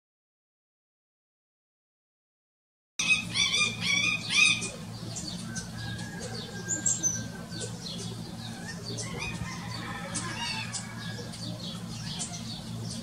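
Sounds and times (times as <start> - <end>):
sparrows chirping: 3.0 - 13.0
steady low hum: 3.0 - 13.0.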